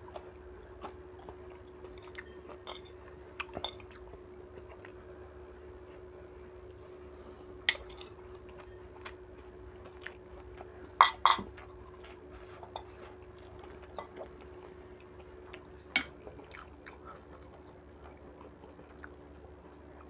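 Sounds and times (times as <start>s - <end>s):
faint steady hum: 0.0s - 20.0s
cutlery clinking on ceramic dishes: 2.7s - 3.0s.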